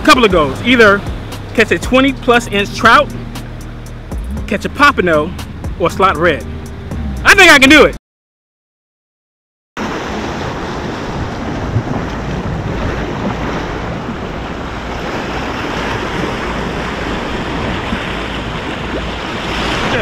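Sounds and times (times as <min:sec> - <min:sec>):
waves splashing against rocks: 0:09.8 - 0:20.0
wind buffeting microphone: 0:09.9 - 0:20.0.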